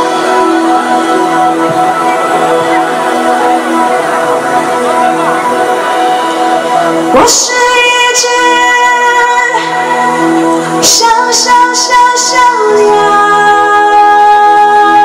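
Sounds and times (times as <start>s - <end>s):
keyboard chords: 0.0s - 15.0s
pop band playing slow song: 0.0s - 15.0s
woman singing: 7.1s - 15.0s.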